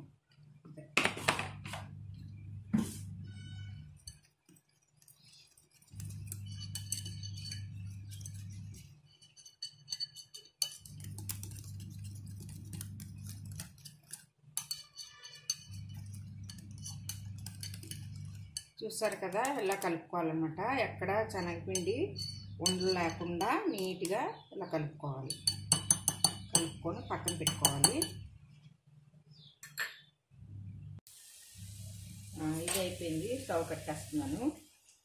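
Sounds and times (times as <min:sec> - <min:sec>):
low hum: 0:01.7 - 0:04.0, 0:06.0 - 0:08.9, 0:30.4 - 0:31.0
wire whisk clinking on glass bowl: 0:05.9 - 0:19.8, 0:21.6 - 0:23.9, 0:25.3 - 0:28.2.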